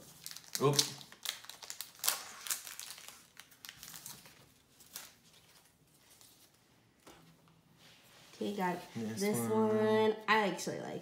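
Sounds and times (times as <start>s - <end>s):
foil pack crinkling and tearing: 0.0s - 6.4s.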